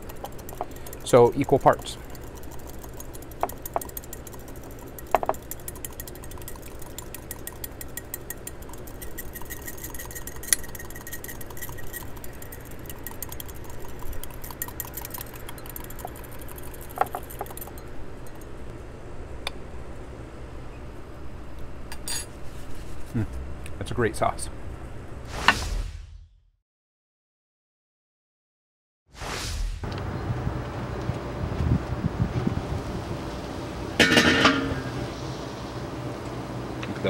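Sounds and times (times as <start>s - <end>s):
whisk clicking against bowl: 0.0s - 18.4s
low steady hum: 0.0s - 25.2s.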